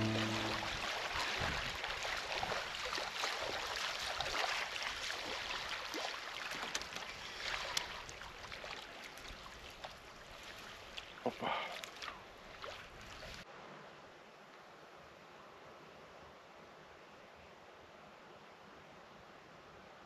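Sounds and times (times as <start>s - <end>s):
light ticks and splashes: 0.0s - 13.5s.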